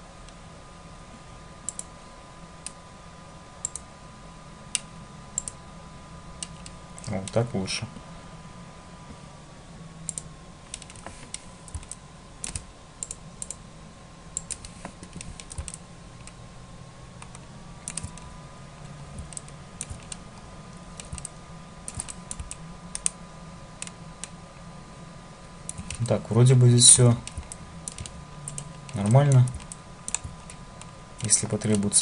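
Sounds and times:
faint electrical hum with whine: 0.0 - 32.0
keyboard and mouse clicking: 1.7 - 1.9, 3.6 - 3.8, 4.7 - 5.6, 10.1 - 13.6, 14.4 - 16.4, 17.2 - 18.3, 19.2 - 20.2, 21.0 - 21.3, 21.9 - 23.2, 25.7 - 26.2, 27.2 - 32.0.

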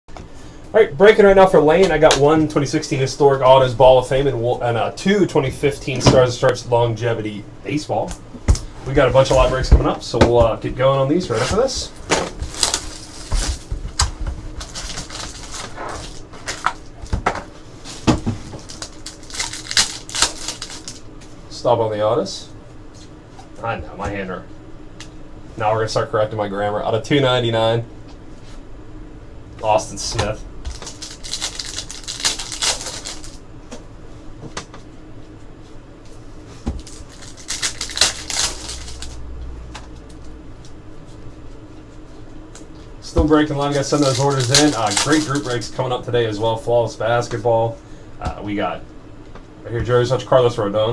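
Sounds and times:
card packs rustling: 11.2 - 17.2, 17.9 - 21.0, 30.2 - 33.4, 36.8 - 39.2, 43.2 - 45.8.

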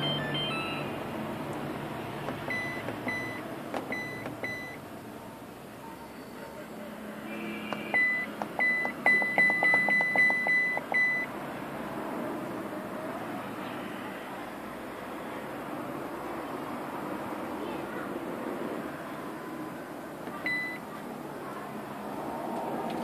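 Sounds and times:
washing machine button beeps: 0.0 - 0.9, 2.4 - 4.8, 7.7 - 11.3, 20.3 - 20.8.

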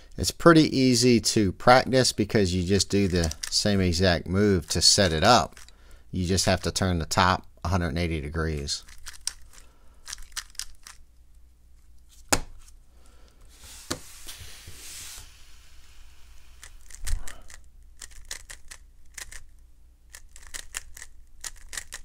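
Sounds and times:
puzzle cube clicking: 2.8 - 3.6, 8.8 - 11.1, 16.4 - 22.0.

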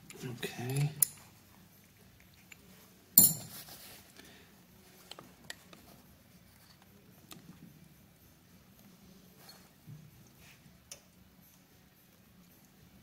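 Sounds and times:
faint metal clicks and taps: 10.8 - 11.1.

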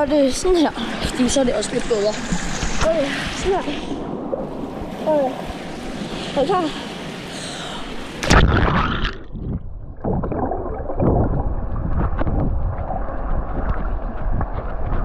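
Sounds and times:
muffled underwater bubbling: 8.2 - 15.0.

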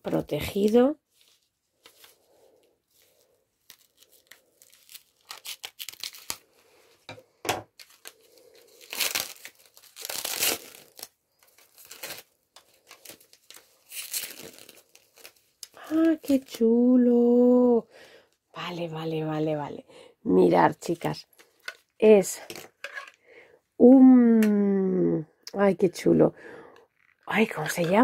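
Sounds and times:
plastic wrapping crinkling: 0.5 - 6.7, 7.7 - 16.7.

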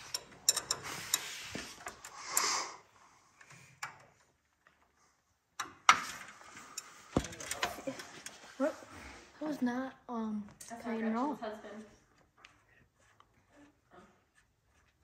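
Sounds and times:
wrench clinking on steel: 0.0 - 1.3.

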